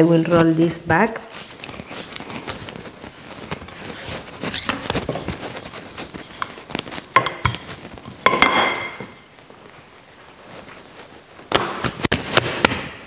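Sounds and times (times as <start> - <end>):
rolling pin tapping on benchtop: 7.2 - 7.6.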